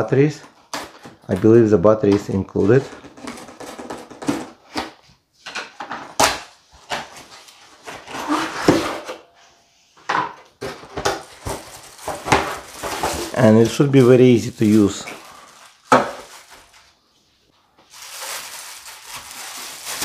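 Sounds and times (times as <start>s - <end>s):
cardboard scraping and rustling: 10.7s - 13.8s.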